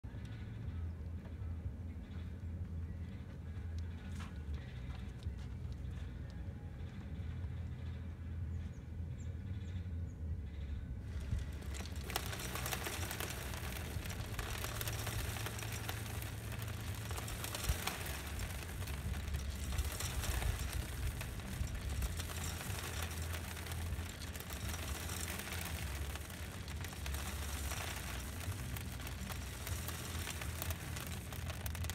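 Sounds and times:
feeder motor humming: 11.1 - 31.9.

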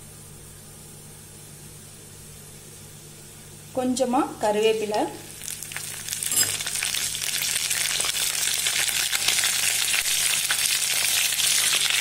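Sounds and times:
spices sizzling in hot oil: 3.0 - 12.0.

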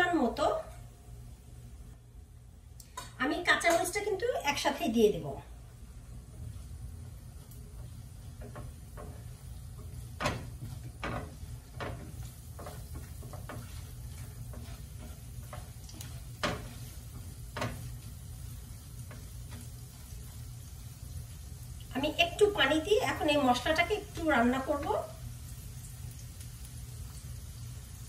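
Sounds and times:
low steady hum: 0.0 - 28.0
spatula scraping frying pan: 6.3 - 20.7.

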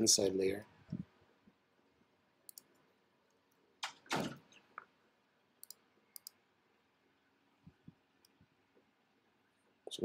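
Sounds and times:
computer mouse clicking: 2.5 - 4.0, 5.6 - 6.4.

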